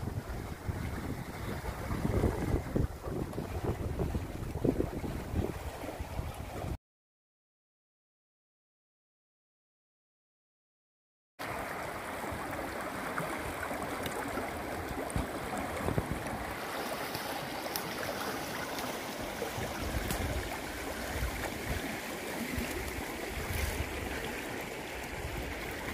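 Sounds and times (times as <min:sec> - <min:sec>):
river rushing over stones: 0:11.4 - 0:25.9.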